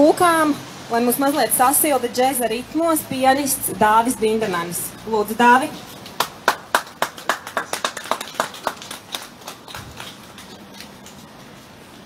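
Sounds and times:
crowd applauding: 6.1 - 11.2.

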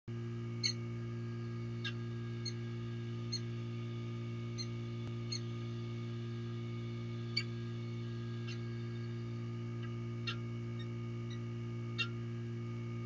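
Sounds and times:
low electrical hum: 0.1 - 13.0
high bird chirps: 0.6 - 0.8, 3.3 - 3.5, 4.6 - 5.5, 9.8 - 11.4, 12.0 - 12.2.

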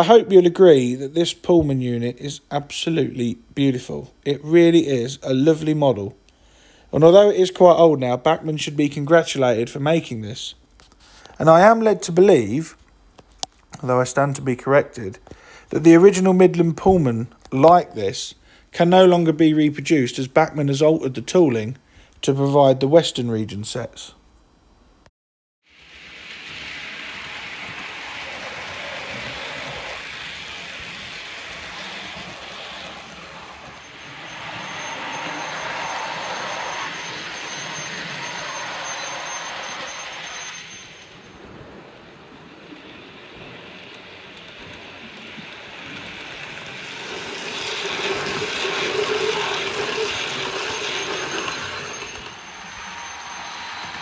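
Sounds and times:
model train running on track: 7.0 - 8.1, 25.7 - 54.0.

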